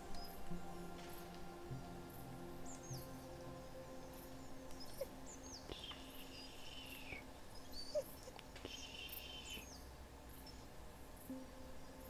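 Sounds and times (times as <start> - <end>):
faint steady low tones: 0.0 - 12.0
bird chirps: 2.1 - 10.6.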